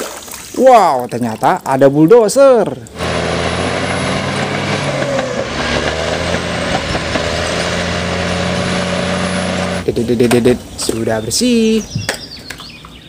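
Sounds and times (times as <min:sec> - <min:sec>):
bulldozer diesel engine: 0:02.8 - 0:10.8
blade pushing dirt: 0:02.9 - 0:09.9.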